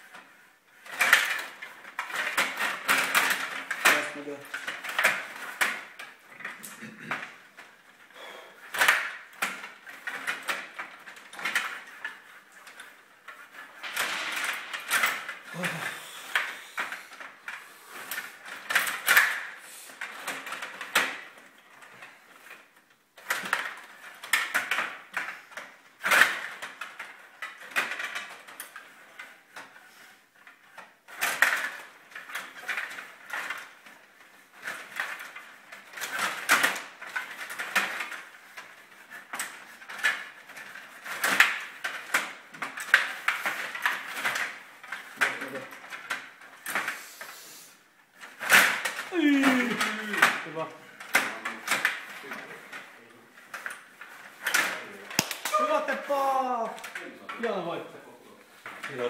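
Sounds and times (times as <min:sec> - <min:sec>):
control rods rattling and clicking: 0:00.0 - 0:29.8.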